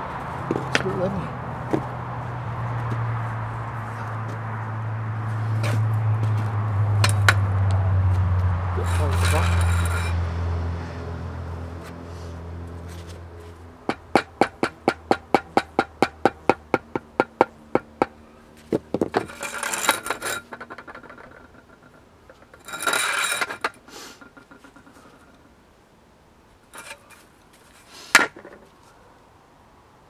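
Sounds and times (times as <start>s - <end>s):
scraping: 2.8s - 11.0s, 11.7s - 25.5s, 26.7s - 29.0s
rubber mallet knocking concrete slab: 13.9s - 19.3s.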